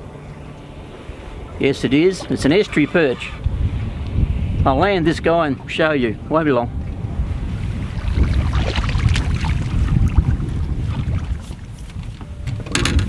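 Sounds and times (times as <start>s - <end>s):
wind buffeting microphone: 0.0s - 13.0s
water splashes: 5.0s - 12.2s.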